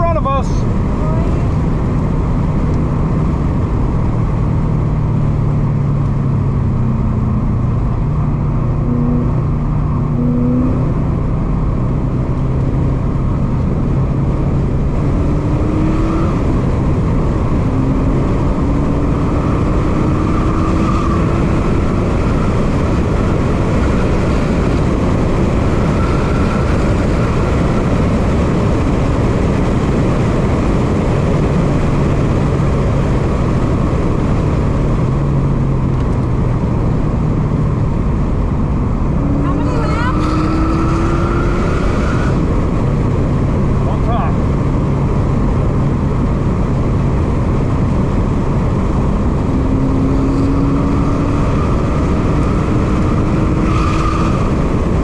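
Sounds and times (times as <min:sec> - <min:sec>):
car engine under load: 0:00.0 - 0:55.0
wind and road noise: 0:00.0 - 0:55.0.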